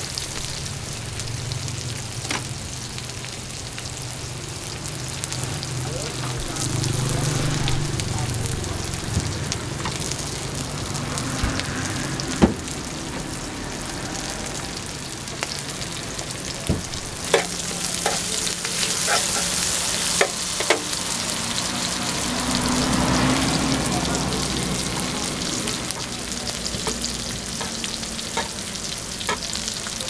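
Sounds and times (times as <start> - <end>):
food sizzling in hot oil: 0.0 - 30.0.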